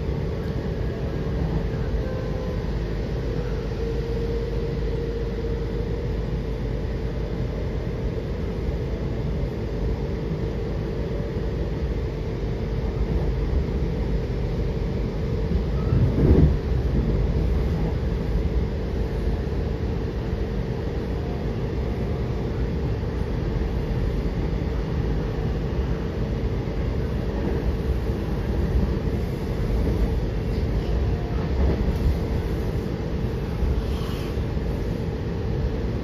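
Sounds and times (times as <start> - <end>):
train wheels rumbling on rails: 0.0 - 36.0
train bump: 15.8 - 18.0.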